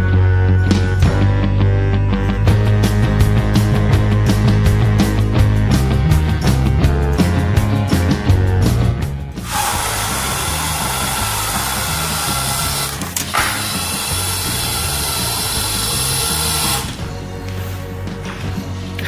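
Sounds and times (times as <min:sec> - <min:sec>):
background music: 0:00.0 - 0:19.0
robot electric motors whirring: 0:09.4 - 0:17.1.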